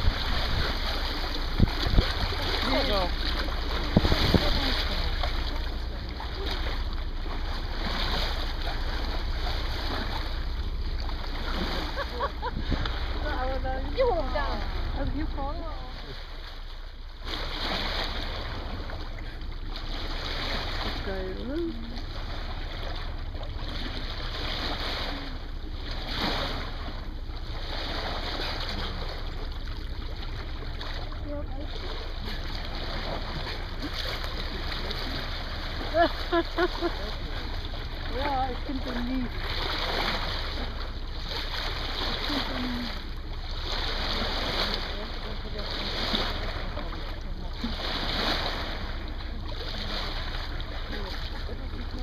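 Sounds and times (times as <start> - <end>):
wind on microphone: 0.0 - 2.6, 3.6 - 4.9, 12.4 - 13.2
low engine hum: 0.0 - 52.0
low rumble: 0.0 - 52.0
water rushing along boat hull: 0.0 - 52.0.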